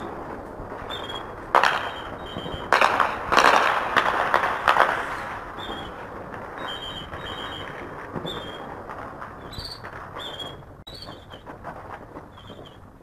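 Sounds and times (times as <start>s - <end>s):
high bird chirps: 9.4s - 11.4s.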